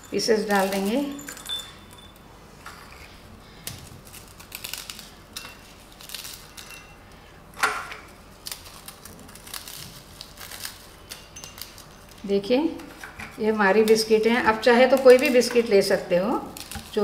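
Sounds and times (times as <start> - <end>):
biscuits snapping and crumbling: 3.6 - 6.8, 7.6 - 12.2, 16.4 - 17.0.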